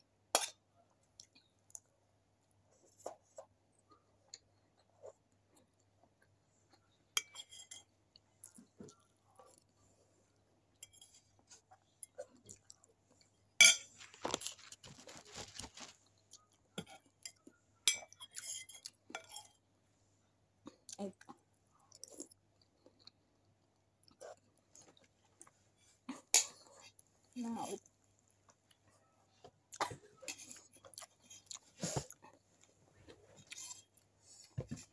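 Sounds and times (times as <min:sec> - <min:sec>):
spoon clinking and scraping bowl: 0:07.2 - 0:08.0, 0:10.8 - 0:11.3, 0:13.6 - 0:14.0, 0:16.8 - 0:19.6
chewing: 0:20.6 - 0:27.1, 0:27.8 - 0:34.6.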